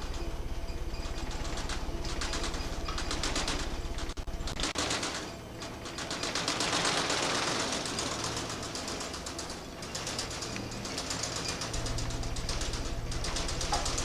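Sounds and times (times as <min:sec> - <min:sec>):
rapid mechanical clatter: 0:00.0 - 0:14.0
low pulsing: 0:11.5 - 0:14.0.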